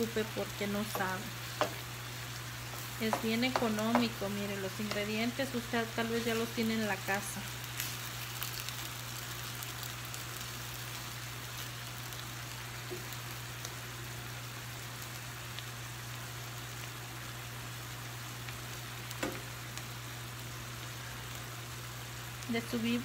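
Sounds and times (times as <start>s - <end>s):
chicken sizzling in a skillet: 0.0s - 23.0s
spatula stirring: 2.6s - 5.1s.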